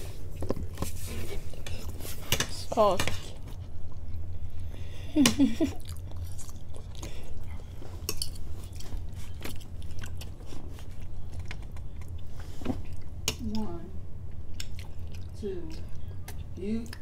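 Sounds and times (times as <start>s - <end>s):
chewing: 5.6s - 13.4s, 14.3s - 17.0s.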